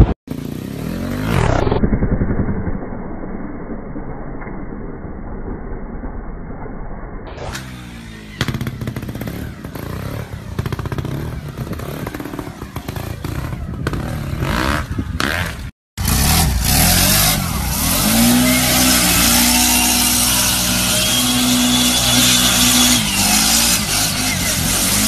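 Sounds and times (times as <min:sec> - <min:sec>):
quad bike engine revving: 0:00.0 - 0:01.8, 0:07.4 - 0:25.0
wind noise: 0:13.2 - 0:15.6.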